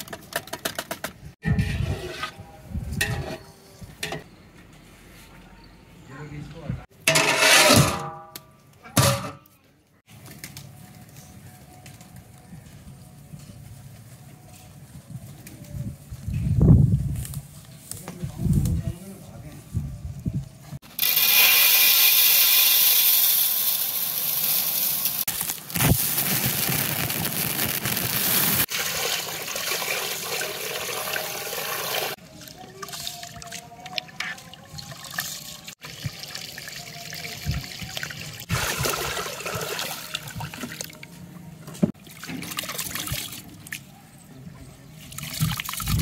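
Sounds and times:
water running and pouring: 28.0s - 32.2s, 32.8s - 40.7s.

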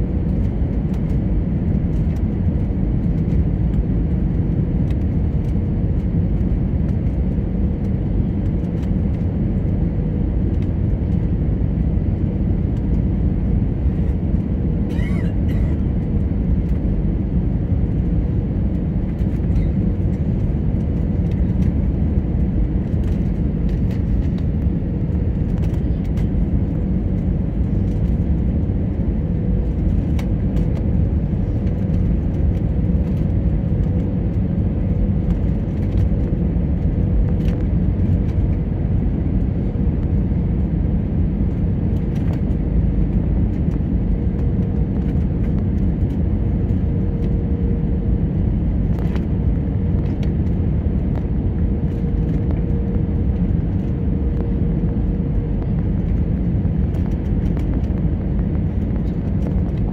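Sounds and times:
airflow over wing: 0.0s - 59.9s
jet engine hum in cabin: 0.0s - 59.9s.

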